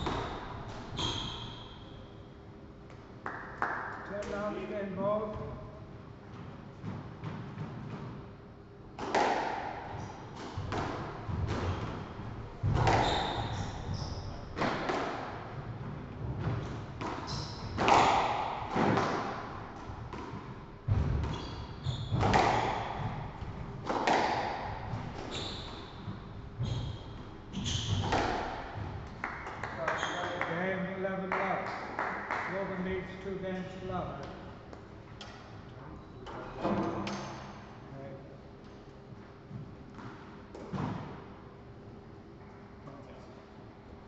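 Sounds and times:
squash ball hits: 0.0 - 1.1, 9.0 - 15.5, 16.2 - 30.5
shoes squeaking on wooden floor: 0.9 - 1.8, 12.7 - 14.5, 17.2 - 18.0, 21.3 - 23.4, 25.0 - 28.4, 29.8 - 30.4.

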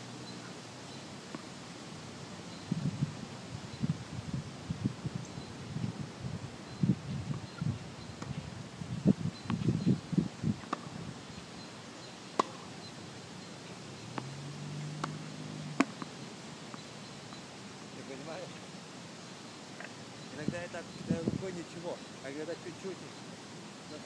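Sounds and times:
tennis ball pops: 12.4 - 12.7, 15.0 - 16.1.

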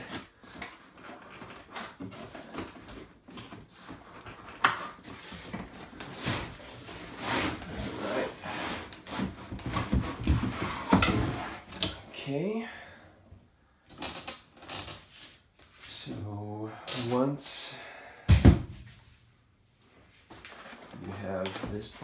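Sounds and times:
cardboard scraping and rubbing: 3.6 - 11.7.

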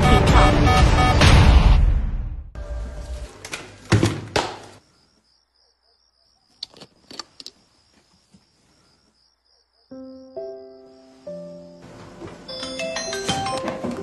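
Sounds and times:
cricket chirping: 4.8 - 12.0.

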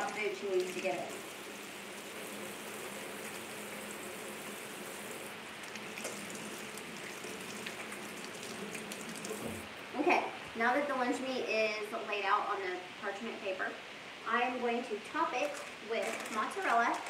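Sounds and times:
hands washing under water: 0.0 - 9.7.

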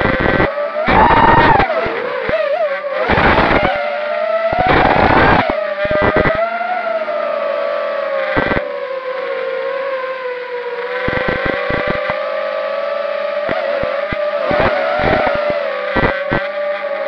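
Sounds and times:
sharp crackles: 0.0 - 3.9, 4.5 - 6.5, 8.2 - 8.6, 10.8 - 12.3, 13.4 - 16.9
quadcopter motors whining: 0.0 - 17.0.

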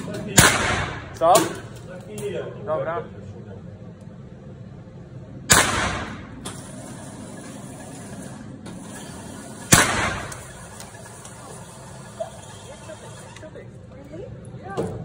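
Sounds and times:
handgun shots indoors: 0.4 - 1.7, 5.5 - 6.4, 9.7 - 10.6.

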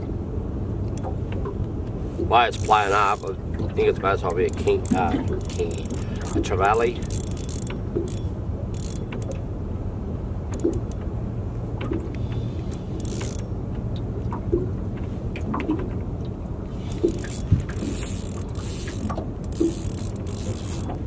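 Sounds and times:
fishing reel clicking: 2.4 - 9.4, 10.5 - 11.0, 12.7 - 13.5, 16.8 - 21.0.

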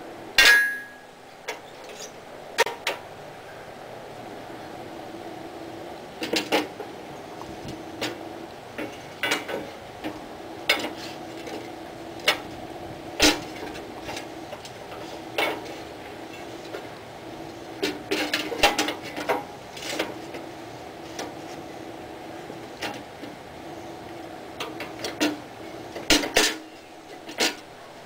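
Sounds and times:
steady low hum: 0.0 - 28.0
steel panel clanking and scraping: 6.2 - 6.8, 8.8 - 16.9, 17.5 - 21.6, 24.6 - 27.8.

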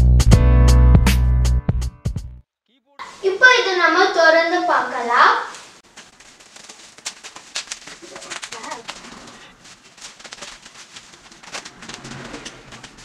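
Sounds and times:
bubble wrap crinkling: 5.4 - 13.0.

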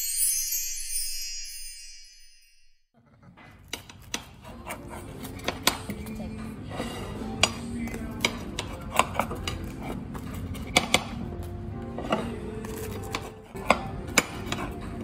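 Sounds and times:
background music: 4.1 - 15.0.

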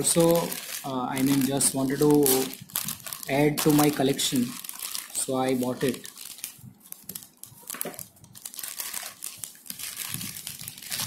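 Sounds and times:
plastic mailer bag crinkling: 0.0 - 11.0.

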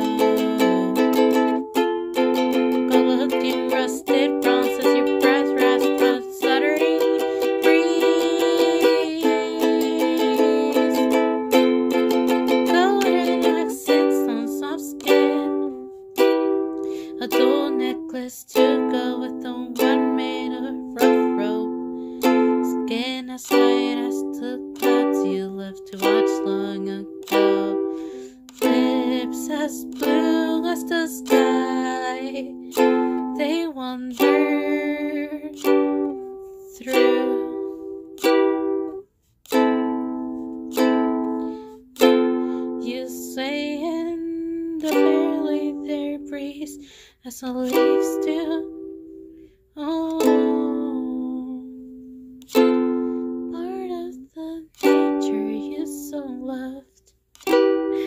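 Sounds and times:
ukulele strumming chords: 0.0 - 56.8, 57.4 - 58.0.

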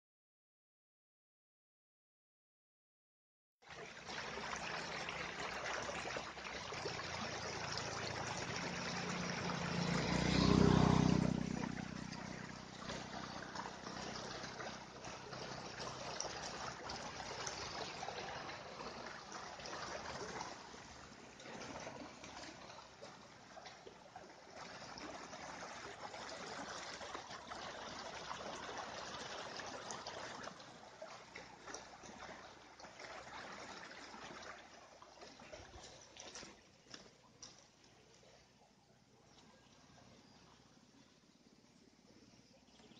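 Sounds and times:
water rushing over rocks: 4.0 - 34.6.

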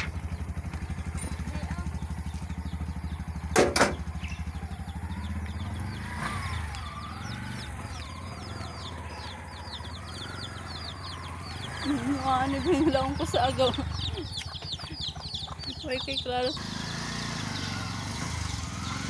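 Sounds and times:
small birds chirping: 0.0 - 19.0
three-wheeler engine idling: 0.0 - 19.0
sharp knocks: 3.5 - 4.0.

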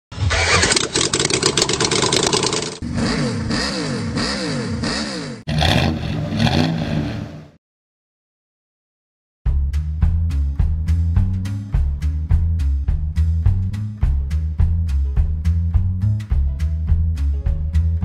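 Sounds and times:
car engine revving: 0.1 - 7.6.

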